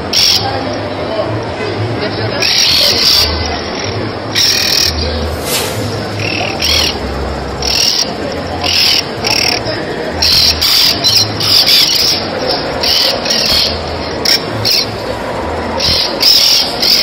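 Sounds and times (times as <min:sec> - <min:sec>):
birds chirping: 0:02.4 - 0:09.6, 0:10.2 - 0:15.2, 0:15.8 - 0:17.0.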